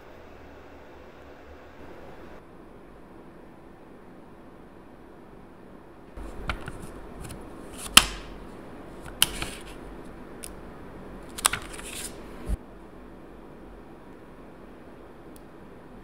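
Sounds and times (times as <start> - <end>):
plastic sheet crinkling and clicking: 9.0 - 9.8, 11.2 - 12.2.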